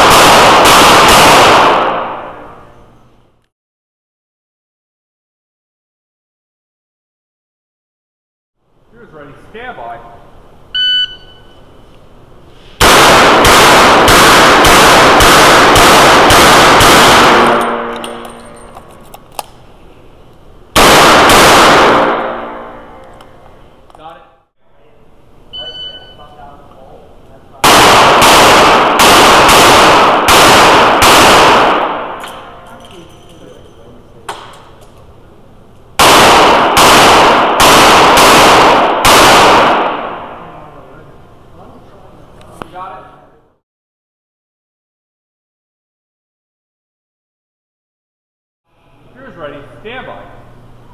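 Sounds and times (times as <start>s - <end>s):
revolver shots echoing indoors: 0.0s - 3.4s, 12.8s - 19.7s, 20.7s - 23.9s, 27.5s - 41.3s.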